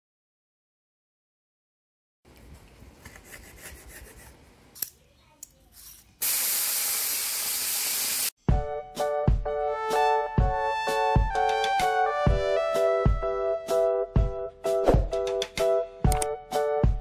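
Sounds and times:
fish sizzling in hot oil: 6.2 - 8.3
music with a beat: 8.5 - 17.0.

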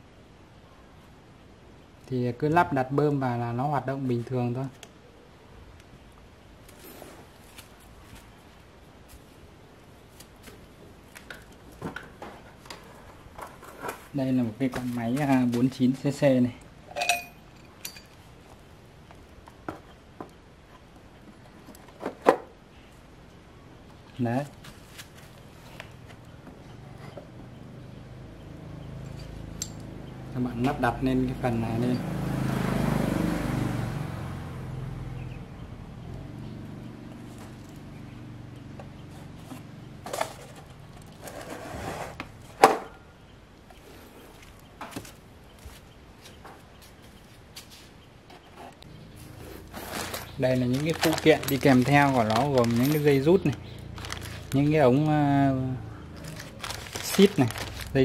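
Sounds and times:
rustling: 43.8 - 55.0, 56.1 - 58.0.

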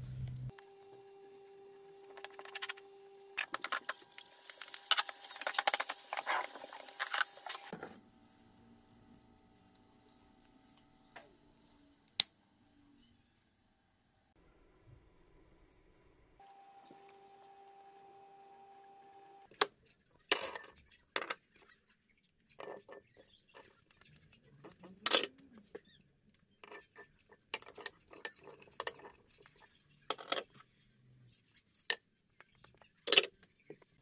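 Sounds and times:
low hum: 0.0 - 0.5.

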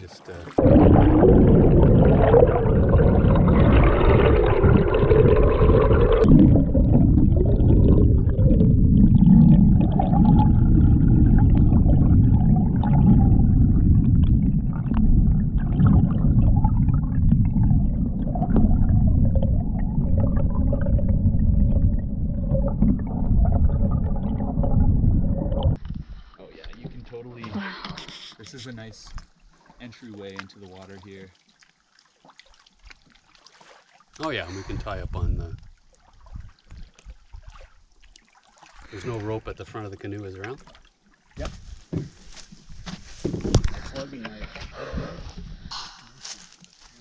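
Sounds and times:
faint gurgles: 0.0 - 42.4, 43.0 - 47.0
underwater rumble of moving water: 0.4 - 27.4, 34.5 - 38.0.

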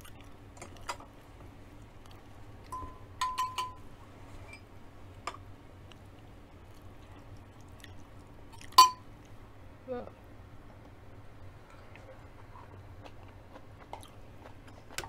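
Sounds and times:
metal spoon clinking on glass dish: 2.7 - 3.8, 8.8 - 9.0.

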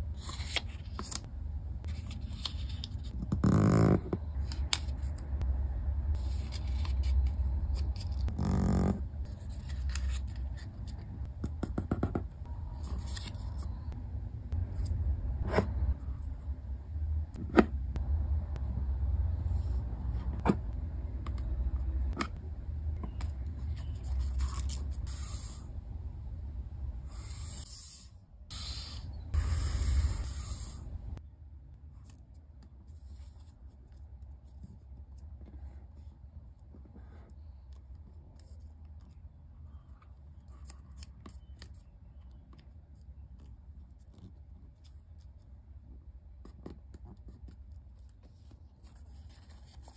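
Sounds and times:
paper rustling and scraping: 6.2 - 11.1, 12.7 - 13.9, 23.6 - 25.5
low hum: 12.4 - 27.2.

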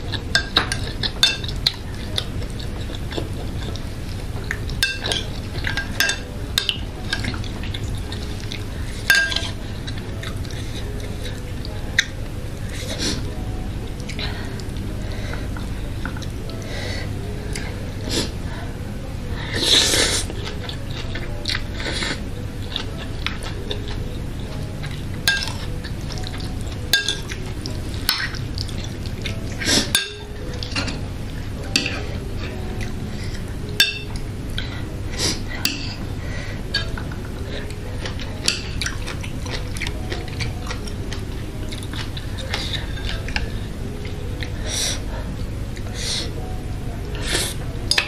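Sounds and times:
fork and chopsticks clinking bowl: 9.1 - 11.0, 25.3 - 27.4, 33.8 - 34.2, 38.0 - 40.8
chewing and slurping noodles: 36.6 - 46.3.

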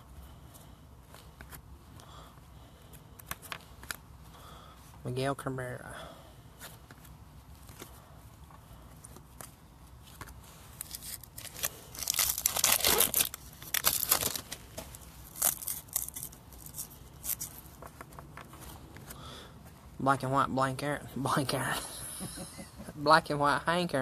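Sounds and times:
card packaging tearing and crinkling: 10.7 - 17.6.

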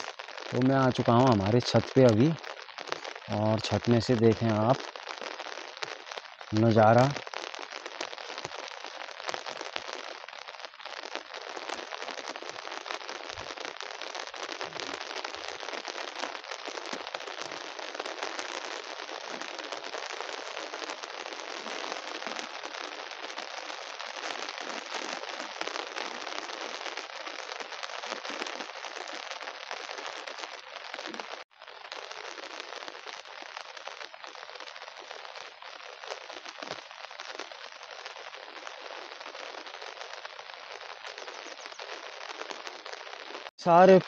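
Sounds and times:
heavy rain falling: 0.0 - 44.0.

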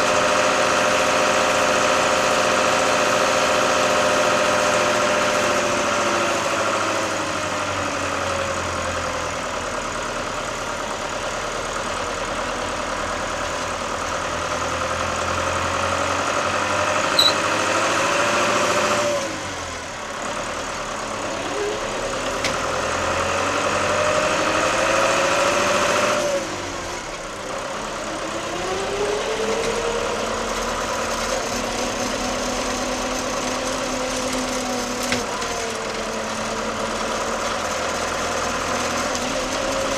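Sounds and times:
tractor diesel engine: 0.0 - 39.9.

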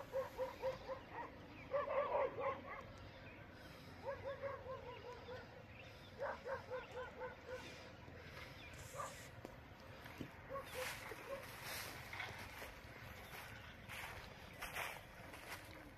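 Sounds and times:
dog barking: 0.0 - 2.9, 4.0 - 5.6, 6.2 - 7.8, 8.9 - 9.2, 10.5 - 11.6.

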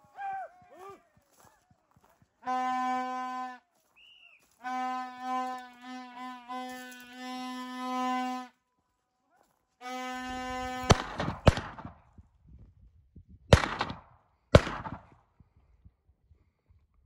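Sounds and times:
brass-like background music note: 4.6 - 8.5
shotgun shots: 10.8 - 12.1, 13.5 - 15.2.

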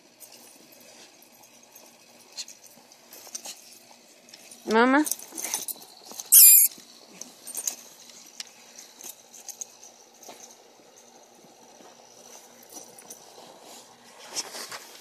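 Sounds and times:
loud high-pitched squeak: 6.3 - 6.7.

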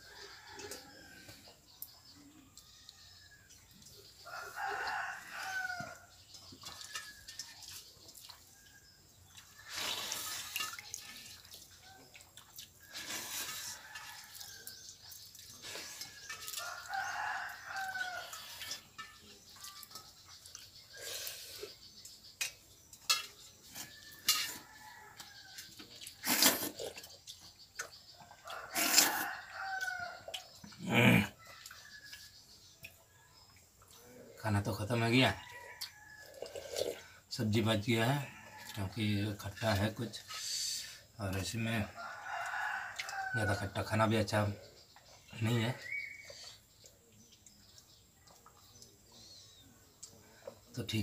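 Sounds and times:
rooster crowing: 4.2 - 6.1, 16.5 - 18.5, 28.4 - 30.3, 42.0 - 43.6.

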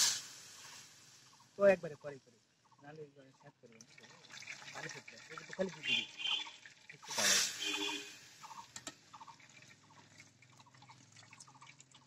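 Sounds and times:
batter sizzling in hot oil: 0.0 - 1.4.

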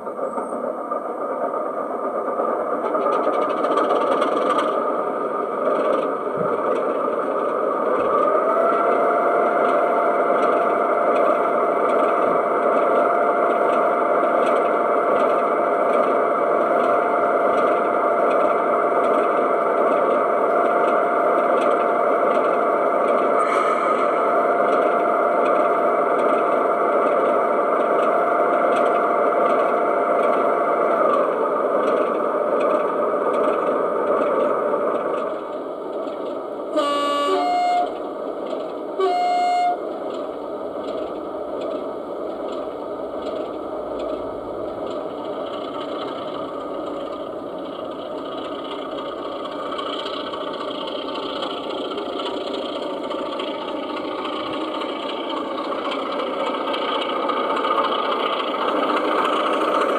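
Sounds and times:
diesel engine sound from speaker: 23.3 - 24.9
short horn blasts: 36.8 - 38.0, 39.0 - 39.8.

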